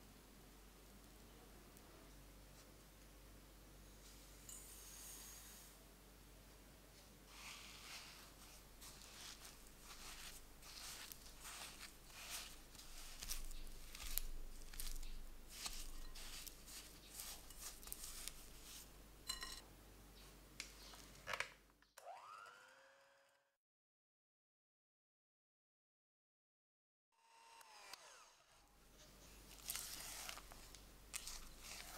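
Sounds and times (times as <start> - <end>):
spatula scraping glass bowl: 7.3 - 19.6, 29.6 - 31.9.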